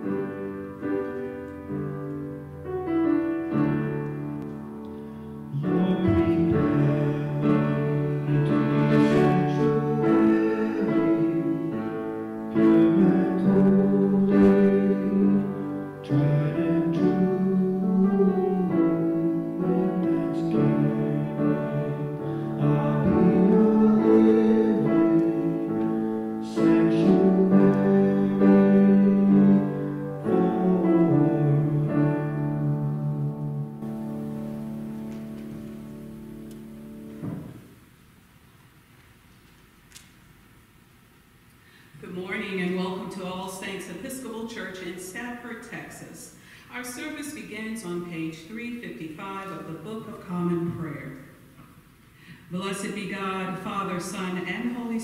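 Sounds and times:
keyboard music slow chords: 0:00.0 - 0:38.2.

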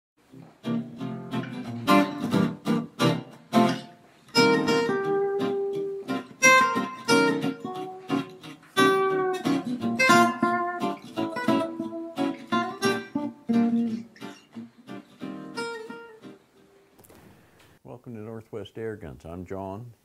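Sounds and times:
strummed guitar chords: 0:00.2 - 0:16.6
picked guitar notes: 0:00.2 - 0:17.1.

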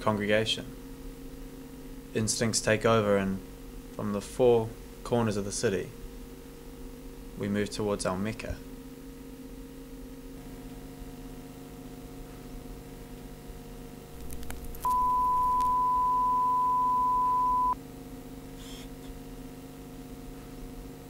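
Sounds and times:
low electronic hum: 0:08.8 - 0:17.8
steady electronic beep: 0:14.8 - 0:17.8.

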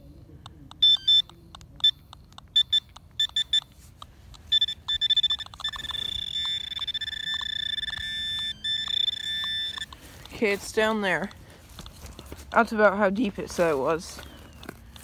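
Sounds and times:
pinpointer beeping: 0:00.7 - 0:11.4.

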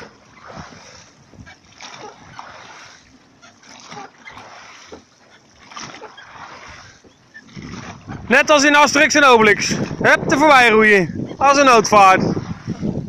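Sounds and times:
oars splashing in water: 0:00.0 - 0:13.0.

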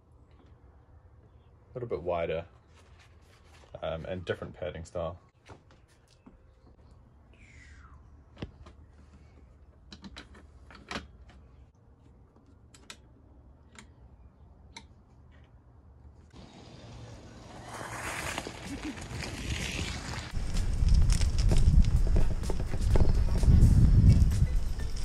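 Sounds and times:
small clicks and knocks of bicycle parts: 0:08.4 - 0:11.7, 0:12.3 - 0:14.0
rushing outdoor noise: 0:16.4 - 0:25.0.

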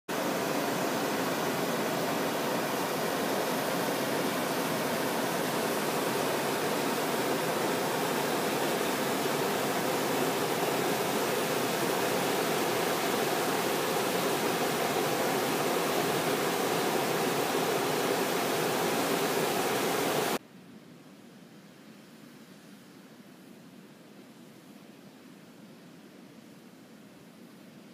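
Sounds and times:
fumarole steam hissing: 0:00.1 - 0:20.4.

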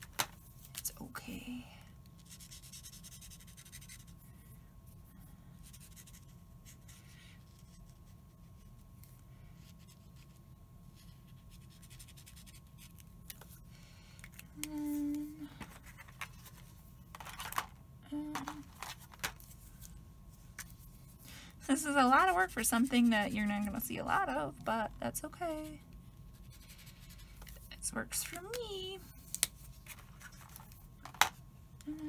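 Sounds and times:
marker scratching on card: 0:02.2 - 0:04.2, 0:05.6 - 0:06.9, 0:11.3 - 0:12.9
person humming: 0:14.6 - 0:15.6, 0:18.0 - 0:18.6, 0:31.8 - 0:32.0.

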